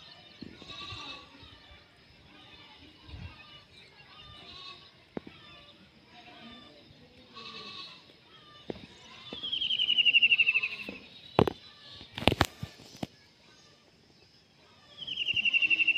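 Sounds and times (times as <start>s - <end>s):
parakeet pulsed call: 9.4s - 10.8s, 14.9s - 15.9s.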